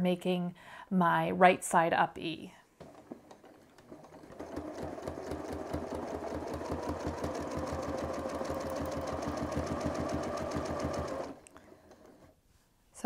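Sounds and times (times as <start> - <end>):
sewing machine running: 2.8 - 12.4.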